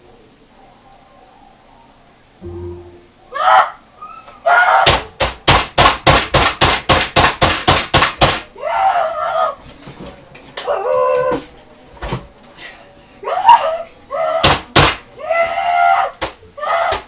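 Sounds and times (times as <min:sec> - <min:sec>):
fist banging on desk: 0:04.8 - 0:08.4, 0:14.4 - 0:15.0.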